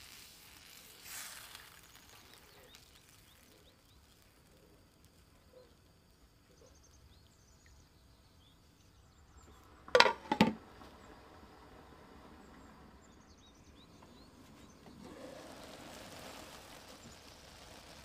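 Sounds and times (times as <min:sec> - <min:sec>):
faint bird chirps: 0:01.8 - 0:04.6.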